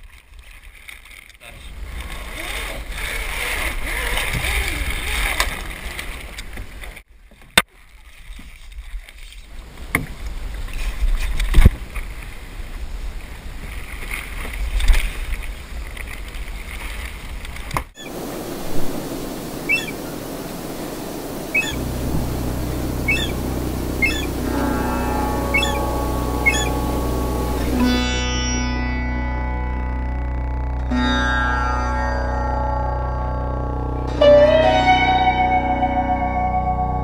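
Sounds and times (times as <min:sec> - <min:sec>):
wind rumbling on microphone: 0:09.4 - 0:27.8
harbourside background: 0:17.6 - 0:37.0
faint short high chirps: 0:23.0 - 0:23.4, 0:24.0 - 0:26.9.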